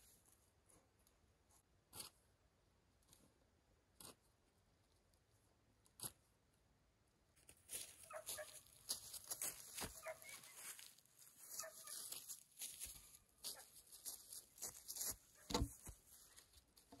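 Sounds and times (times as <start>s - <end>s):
footsteps crunching on dry leaves: 7.7s - 16.4s.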